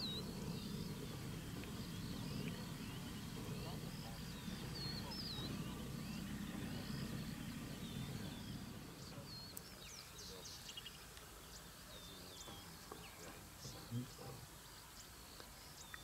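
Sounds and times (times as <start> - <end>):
low rumble: 0.0 - 9.6
birds chirping and whistling: 0.0 - 16.0.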